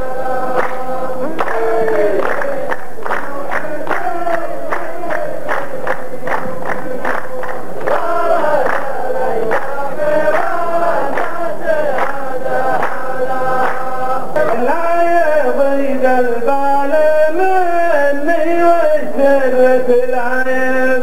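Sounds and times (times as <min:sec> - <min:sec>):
men chanting in unison: 0:00.0 - 0:21.0
hands clapping in time: 0:00.5 - 0:14.7.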